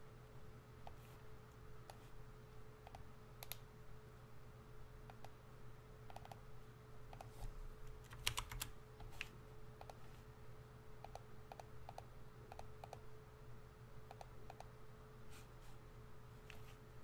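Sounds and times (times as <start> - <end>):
faint steady hum: 0.0 - 17.0
typing on computer keyboard: 7.9 - 10.0.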